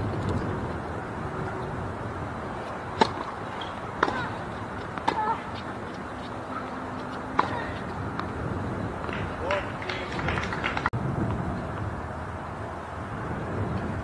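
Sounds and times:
outdoor background noise: 0.0 - 14.0
tennis ball struck by racket: 2.9 - 5.7, 6.6 - 8.3.

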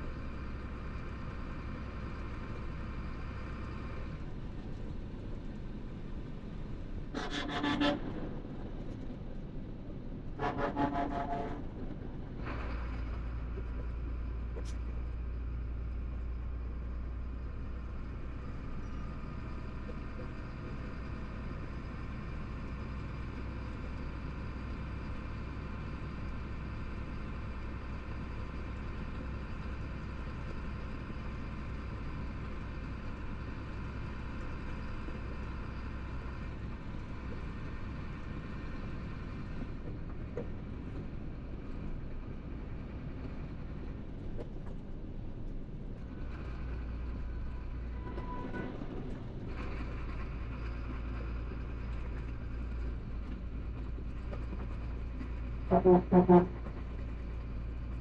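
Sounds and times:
truck diesel engine drone: 0.0 - 58.0
tyre and road noise: 35.1 - 58.0.

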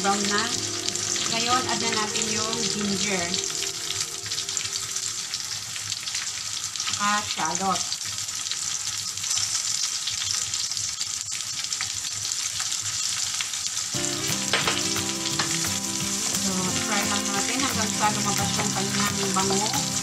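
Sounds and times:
steady pitched tone: 0.0 - 5.8
fish sizzling in oil: 0.0 - 20.0
wooden spatula stir-frying: 14.0 - 20.0.

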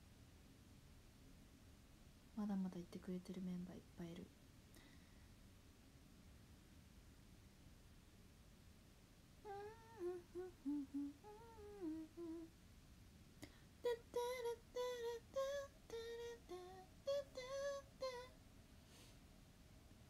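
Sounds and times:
woman humming: 9.4 - 12.5, 13.8 - 18.3.

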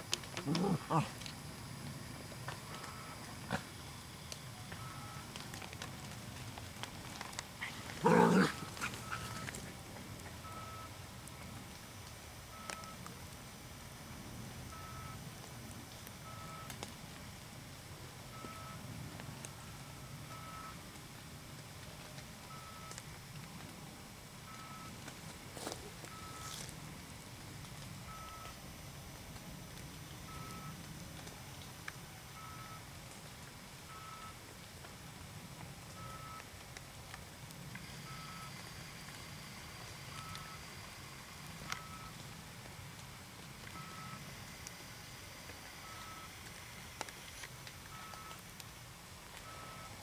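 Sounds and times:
short high-pitched beeps: 10.4 - 10.9, 36.0 - 36.4, 38.1 - 38.6, 41.7 - 42.2, 43.8 - 44.2, 49.4 - 50.0
faint ticks: 18.4 - 23.8, 29.2 - 50.0.

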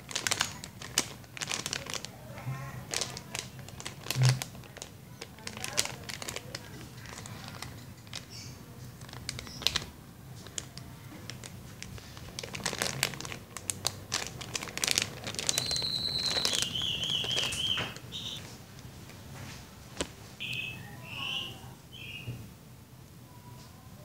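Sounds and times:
plastic bag crinkling: 0.0 - 20.7
high whistling tone: 15.5 - 18.4.

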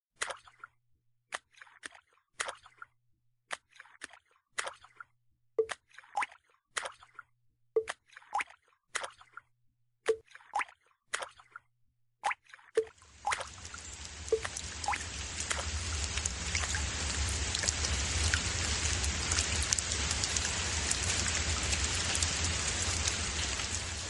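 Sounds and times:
water drips: 5.6 - 7.2, 12.2 - 24.0
rain-like water spatter: 12.8 - 24.0
low hum: 13.2 - 24.0.

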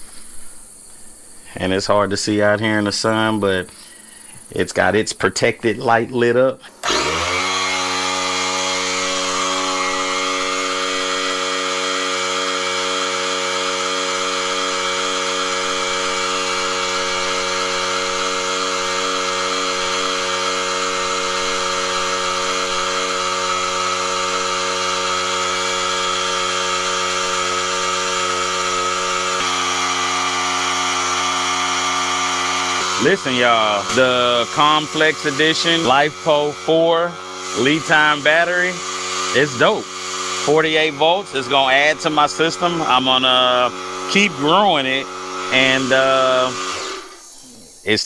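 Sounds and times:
air compressor running: 0.0 - 5.0, 5.7 - 48.0.

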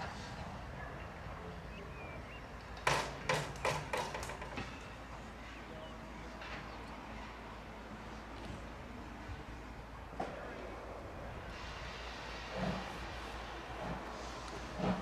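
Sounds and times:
steam locomotive exhaust beats: 6.3 - 15.0.

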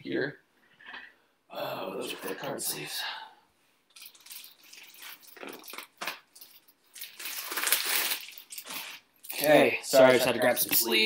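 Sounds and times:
plastic rustling: 3.9 - 11.0
plastic sleeves crinkling: 3.9 - 11.0.

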